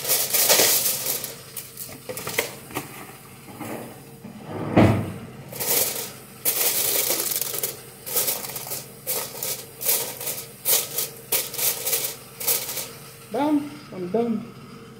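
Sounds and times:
aluminium foil crinkling: 0.0s - 3.2s, 5.5s - 13.0s.

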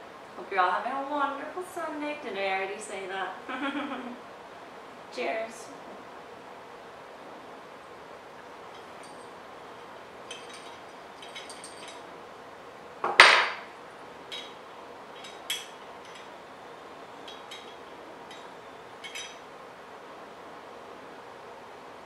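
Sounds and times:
metal tool clinking on glass: 8.7s - 12.1s, 14.3s - 16.4s, 17.2s - 19.4s.

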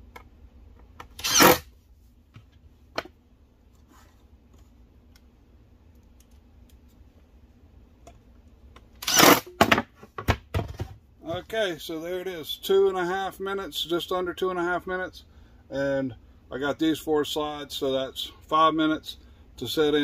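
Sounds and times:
cordless driver driving screw: 1.2s - 1.6s, 9.0s - 9.4s.

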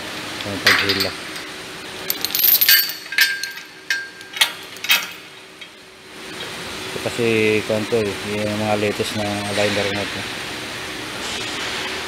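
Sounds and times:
steel chain clinking and rattling: 0.7s - 5.3s.

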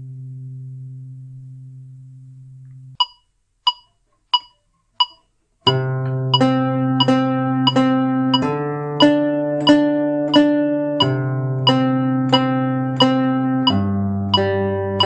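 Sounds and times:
metronome clicks: 2.6s - 15.0s
zither chord: 5.7s - 15.0s
zither plucked notes: 5.7s - 15.0s.

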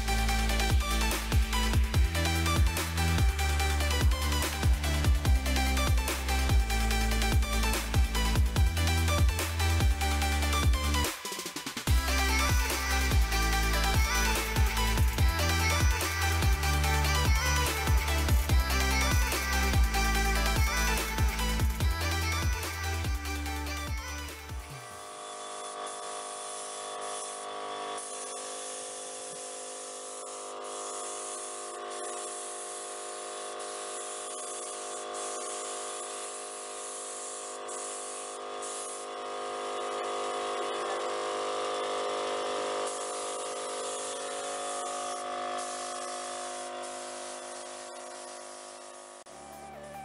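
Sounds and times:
spray gun hissing: 11.1s - 49.3s
machinery whine: 11.8s - 50.0s.

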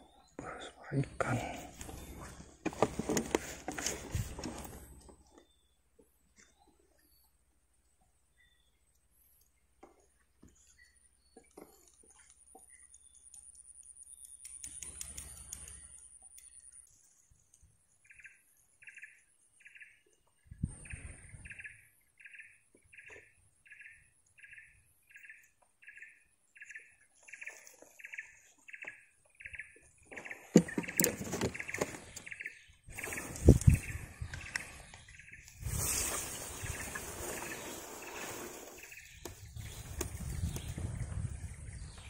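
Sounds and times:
rustling through tall grass: 32.9s - 34.2s, 35.3s - 40.7s.

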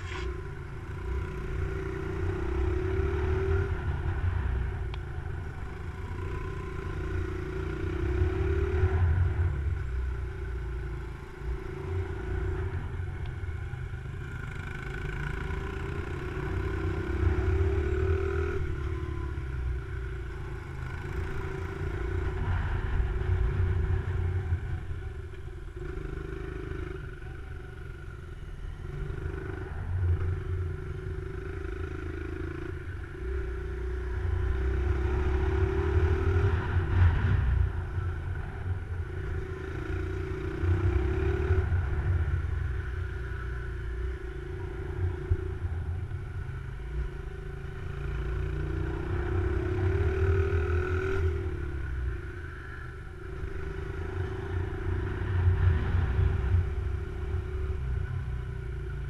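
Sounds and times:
wind rumble on microphone: 20.7s - 26.1s, 33.8s - 47.9s, 48.6s - 59.0s.

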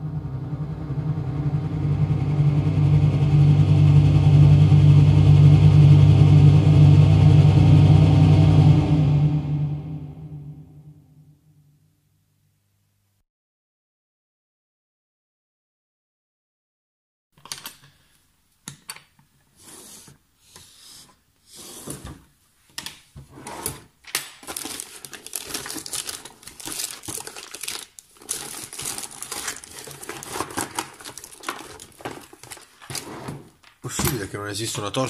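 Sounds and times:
rummaging through things by hand: 18.8s - 34.3s.

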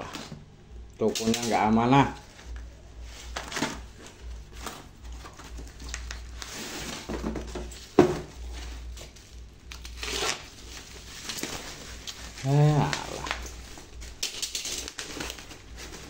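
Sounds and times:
cardboard and plastic rustling: 1.2s - 16.0s
box cutter cutting plastic bag: 9.7s - 10.5s.

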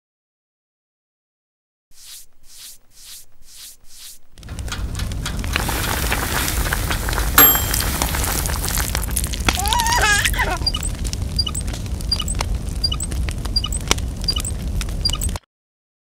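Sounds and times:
cartoon campfire crackling: 1.9s - 15.4s
low rumble: 4.2s - 15.2s
wavering voice cry: 9.5s - 10.9s
faint regular ticks: 10.6s - 15.4s.

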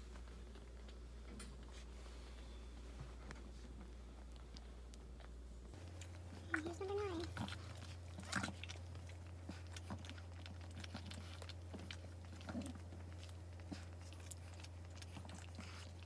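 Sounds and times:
steady low hum: 0.0s - 16.0s
dog licking and chewing: 4.3s - 16.0s.

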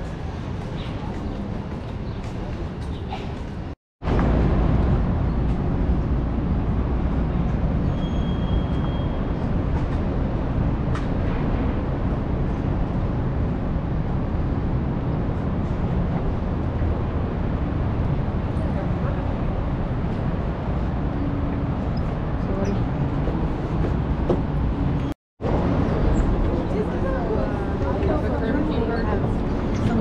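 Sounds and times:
city street traffic rumble: 0.0s - 30.0s
brief high squeal: 7.9s - 9.2s.

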